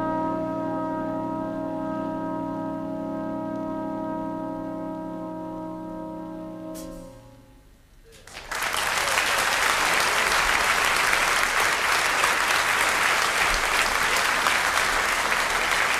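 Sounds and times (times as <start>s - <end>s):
audience applause: 8.1s - 15.9s.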